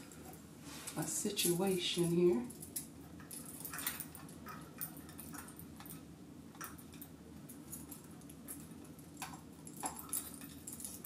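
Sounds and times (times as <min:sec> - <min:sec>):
metal charms clinking: 0:06.6 - 0:11.0.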